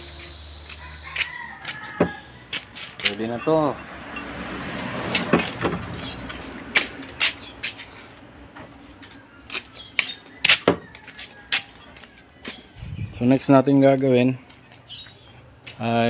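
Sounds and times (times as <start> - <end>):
rough scraping rustle: 0.8 - 3.9.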